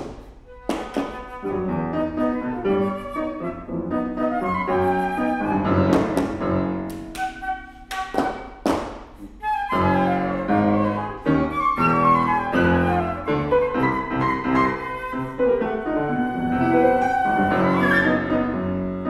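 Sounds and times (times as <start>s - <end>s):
flute and piano playing: 0.1s - 19.0s.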